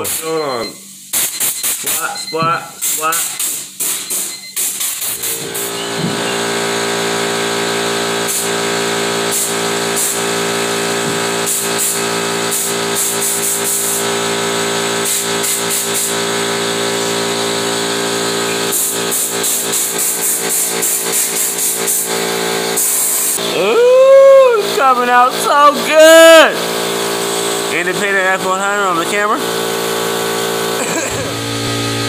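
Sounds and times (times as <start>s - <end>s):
air compressor drone: 0.0s - 32.0s
spray gun air hissing: 2.7s - 6.4s, 8.2s - 8.6s, 9.2s - 23.4s.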